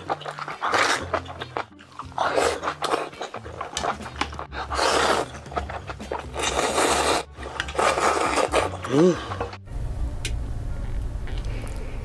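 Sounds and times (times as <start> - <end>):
noodles being slurped: 0.0 - 9.6.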